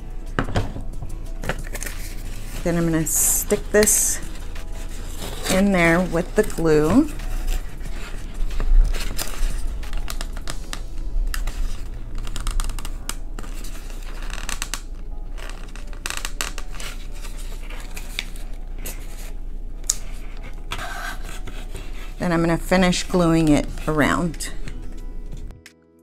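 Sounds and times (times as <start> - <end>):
cardboard rustling and scraping: 0.3 - 25.5
cardboard clicks and crinkles: 1.4 - 2.6, 3.5 - 22.0.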